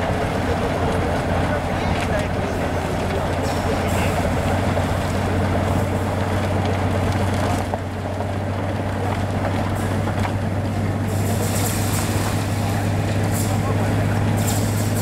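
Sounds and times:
low engine drone: 0.0s - 15.0s
snow rushing noise: 10.7s - 15.0s.

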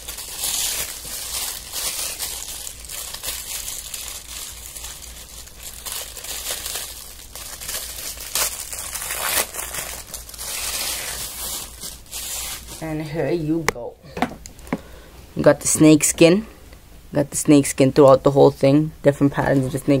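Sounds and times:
paper crinkling and rustling: 0.0s - 13.1s.

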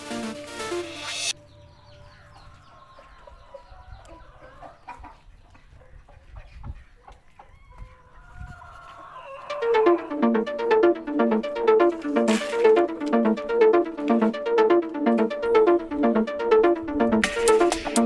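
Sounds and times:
loud electronic music: 0.0s - 1.3s, 9.5s - 18.0s
chicks peeping: 1.4s - 10.2s
hen clucking: 2.1s - 10.2s.

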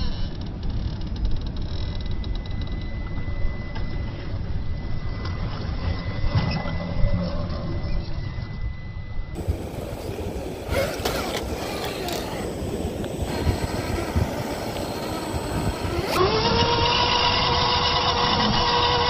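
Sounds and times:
low rumble: 0.0s - 19.0s
electric motor whining: 9.4s - 19.0s.

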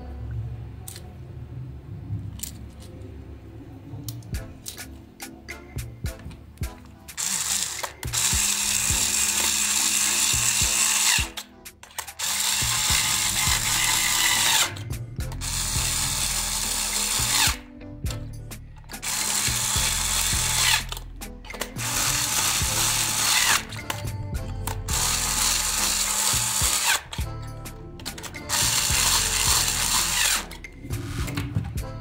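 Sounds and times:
electric screwdriver running: 7.2s - 11.4s, 12.1s - 17.6s, 19.0s - 27.3s, 28.2s - 31.6s.

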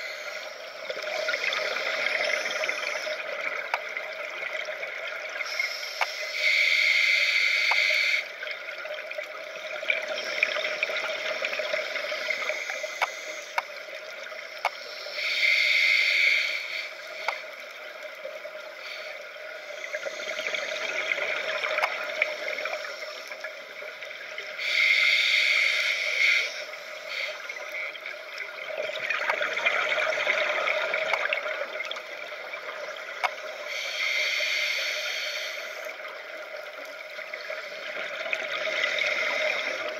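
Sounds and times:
regulator hiss on inhale: 0.0s - 4.0s, 5.3s - 8.5s, 9.5s - 28.4s, 29.9s - 39.9s
faint sharp clicks: 0.3s - 4.1s, 5.4s - 8.2s, 12.0s - 15.2s, 16.0s - 18.3s, 21.4s - 23.5s, 27.2s - 32.1s, 33.0s - 39.8s.

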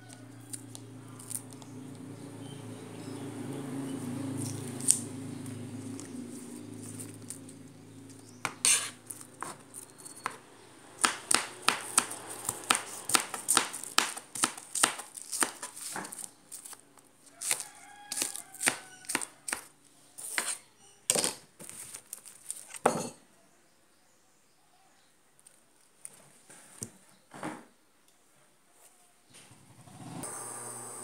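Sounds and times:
knife chopping on cutting board: 8.4s - 10.4s, 11.0s - 16.2s, 17.4s - 20.6s.

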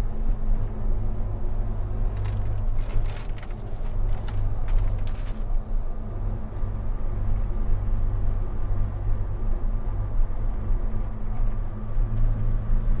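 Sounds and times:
car engine humming: 0.2s - 13.0s.

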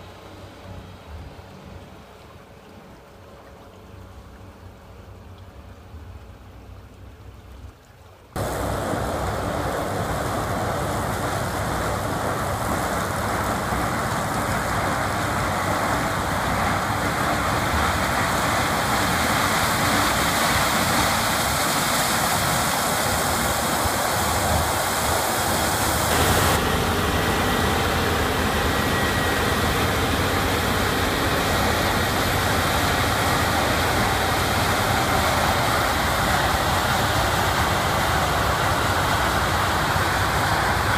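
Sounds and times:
combine harvester roar: 8.4s - 40.9s.

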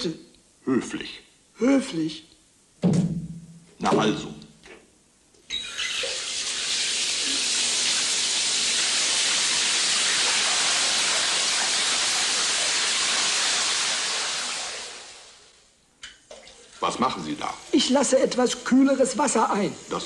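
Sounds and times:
water running from bathtub tap: 5.7s - 15.5s, 16.3s - 19.5s.

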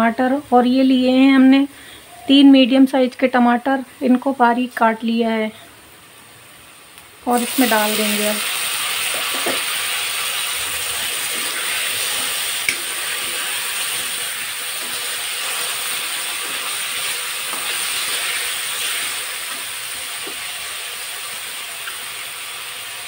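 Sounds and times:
vegetables sizzling in hot oil: 6.2s - 23.0s
metal spatula scraping pan: 11.0s - 20.4s.

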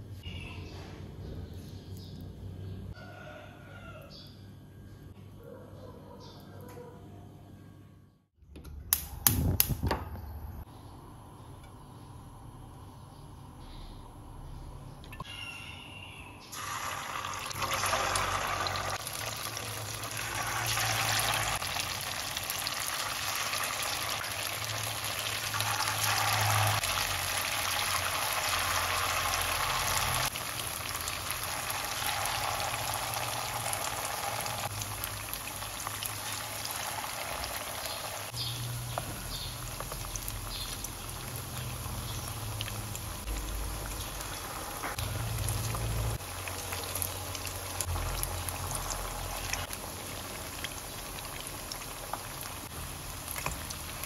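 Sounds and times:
deep-frying sizzle in oil: 16.5s - 54.0s.

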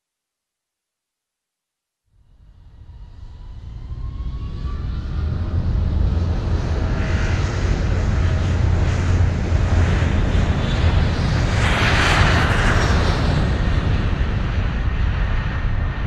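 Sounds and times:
propeller engines droning: 2.3s - 16.0s.

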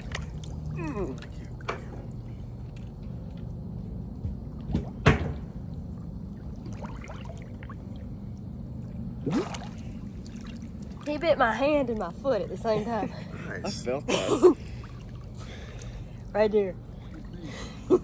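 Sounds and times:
water lapping and splashing: 0.0s - 13.0s, 14.5s - 18.0s
low hum: 0.0s - 18.0s
sharp water splash: 6.6s - 7.9s, 9.2s - 11.1s.

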